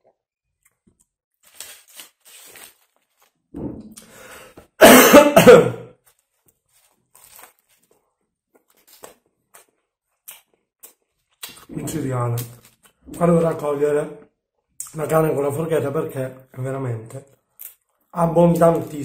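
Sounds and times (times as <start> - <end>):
man coughing harshly: 4.8 - 5.9.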